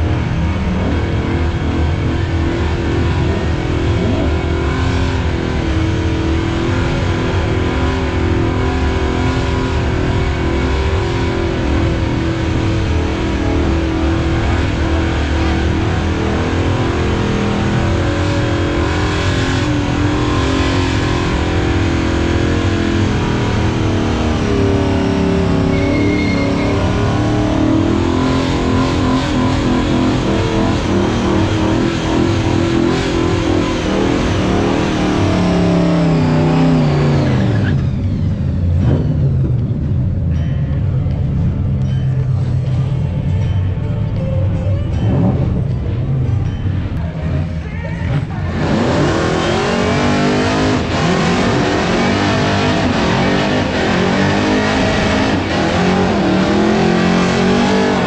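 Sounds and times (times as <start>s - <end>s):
car engine revving high: 0.0s - 39.6s, 48.1s - 58.0s.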